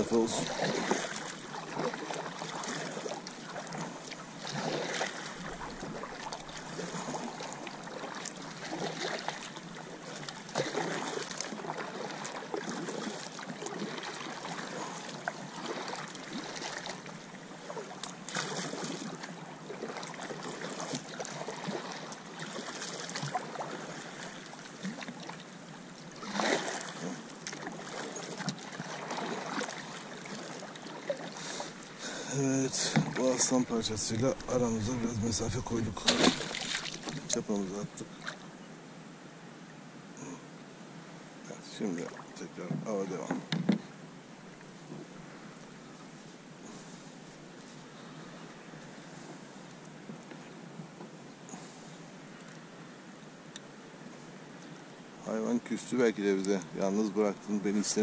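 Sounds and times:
water washing: 0.0 - 25.4, 26.0 - 38.4
paddle splashing in water: 0.0 - 38.5, 41.8 - 44.0.

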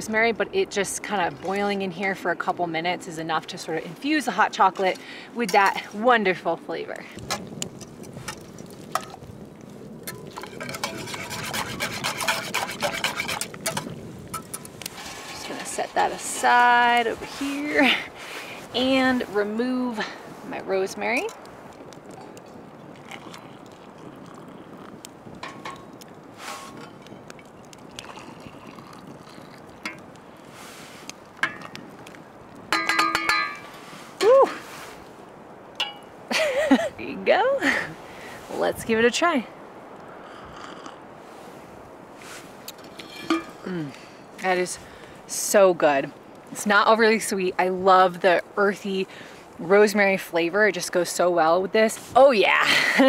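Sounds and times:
whisk scraping metal pot: 10.1 - 16.6
liquid pouring into mugs: 22.9 - 24.9, 27.7 - 30.1.

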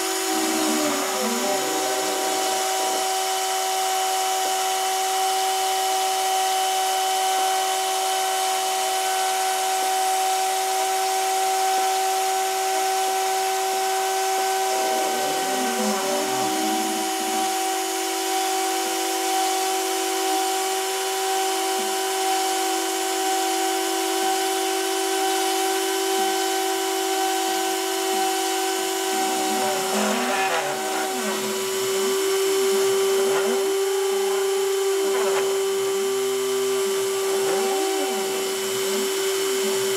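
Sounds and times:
stepper motors whirring: 0.0 - 6.2, 12.2 - 22.3, 25.4 - 39.9
rotary tool spindle whine: 0.0 - 39.9.

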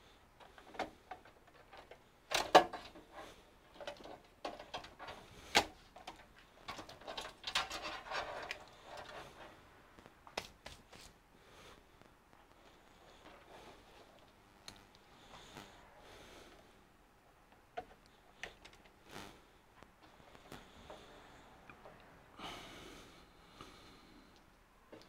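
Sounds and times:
cables and connectors handled: 0.4 - 15.8, 17.3 - 22.1
sharp clicks: 14.2 - 15.7.

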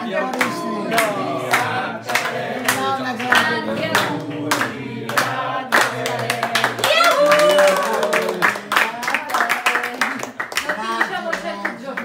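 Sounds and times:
group of people singing: 0.0 - 7.2
people clapping in time: 0.3 - 12.0.

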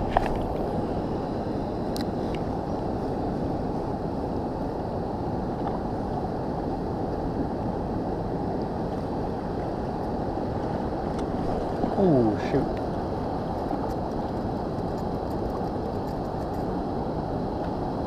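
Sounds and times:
river current rushing: 9.2 - 13.5.

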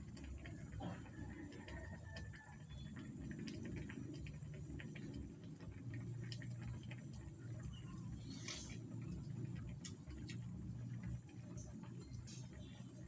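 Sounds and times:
low steady rumble: 0.0 - 13.0
sauce bubbling and popping: 2.7 - 13.0.

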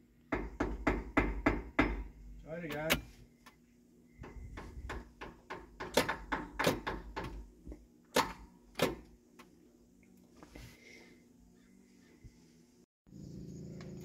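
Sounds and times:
hammer knocking on metal: 0.3 - 2.1, 4.2 - 7.4.

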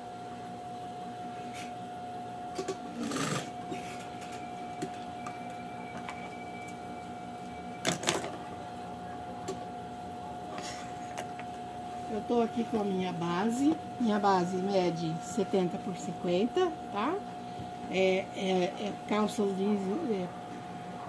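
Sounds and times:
sewing machine running: 2.9 - 3.5.

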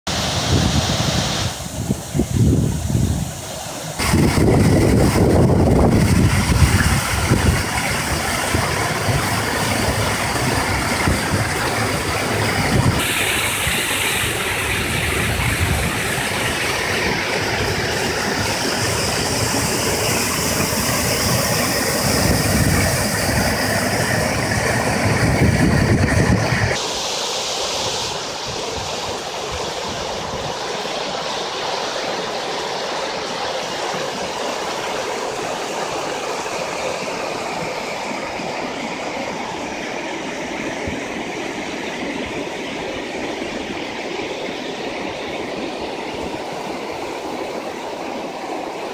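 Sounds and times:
water rushing over dam edges: 0.1 - 48.9
deep water rumble: 4.0 - 26.8.

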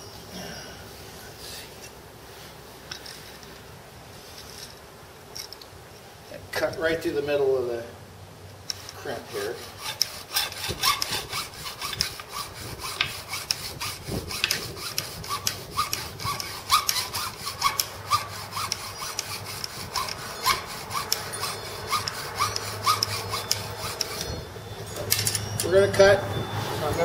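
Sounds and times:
hacksaw rasping through metal: 8.7 - 25.8.

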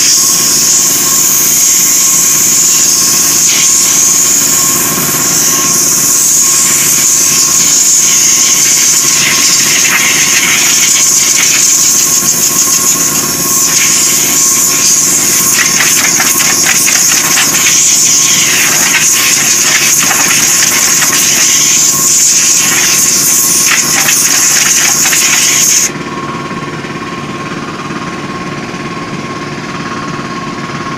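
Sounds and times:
compressed air hissing: 0.0 - 25.9
machine hum: 0.0 - 30.9.

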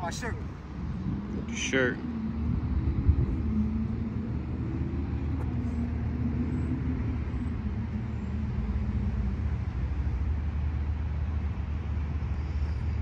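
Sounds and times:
wavering hum: 0.4 - 10.6.

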